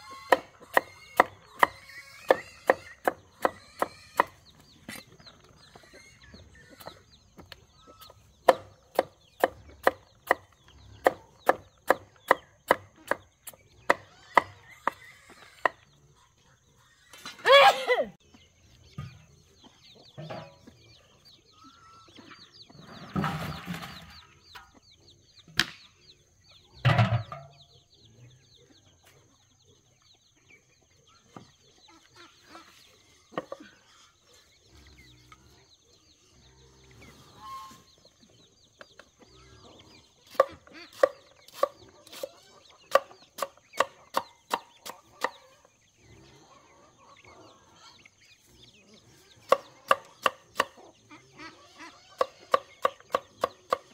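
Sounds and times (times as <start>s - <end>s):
chickens clucking: 0.0s - 53.9s.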